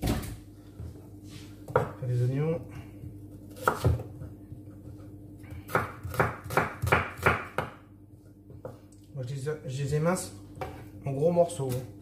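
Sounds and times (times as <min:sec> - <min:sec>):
knife chopping on wooden board: 0:01.7 - 0:02.0, 0:03.5 - 0:07.9.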